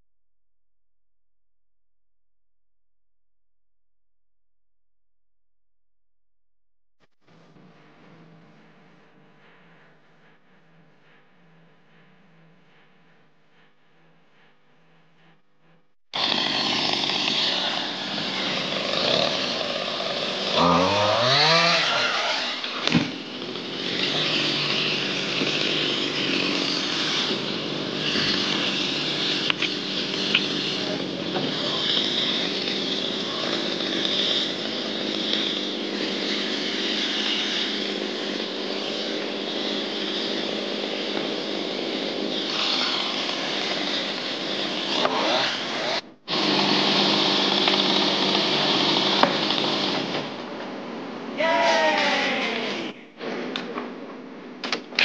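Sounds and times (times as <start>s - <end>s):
small petrol engine running: 16.1s - 50.4s.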